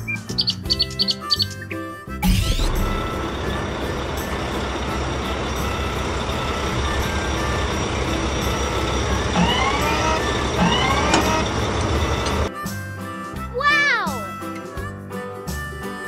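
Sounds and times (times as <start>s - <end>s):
short rising chirps: 2.2s - 12.5s
wheel loader engine running: 2.2s - 12.5s.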